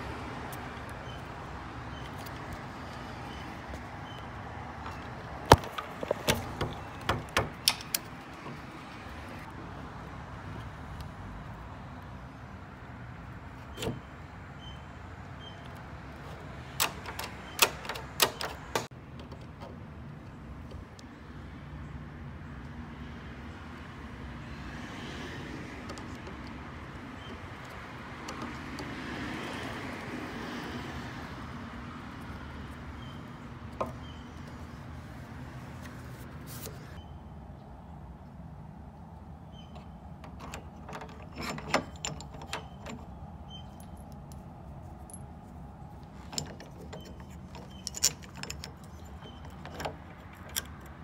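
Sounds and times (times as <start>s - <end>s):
metal handleset clicks: 4.1s - 8.6s, 15.6s - 21.1s, 39.5s - 45.3s, 46.0s - 51.0s.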